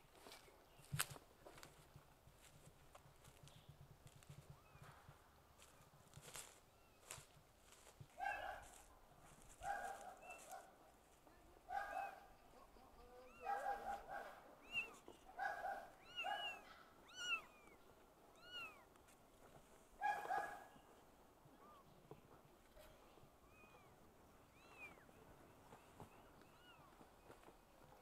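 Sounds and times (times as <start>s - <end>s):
kittens mewing: 12.3s - 18.9s, 23.4s - 25.1s, 26.4s - 26.9s.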